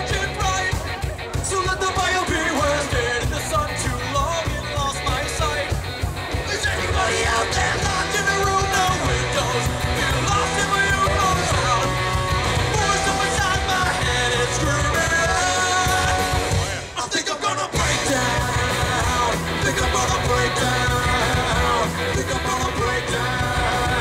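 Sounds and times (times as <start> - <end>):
bass guitar: 0.0 - 24.0
drums: 0.0 - 24.0
electric guitar: 0.0 - 24.0
man singing and shouting: 0.0 - 24.0.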